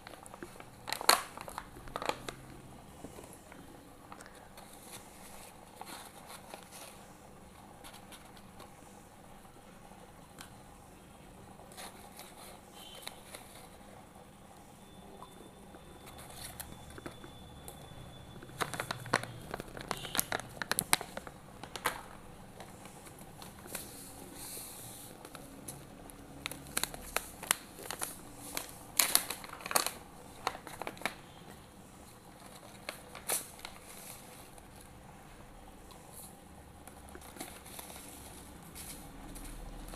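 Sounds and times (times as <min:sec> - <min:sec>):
plastic packet crinkling: 0:00.0 - 0:02.6, 0:18.4 - 0:24.0, 0:25.2 - 0:31.3, 0:32.3 - 0:34.9.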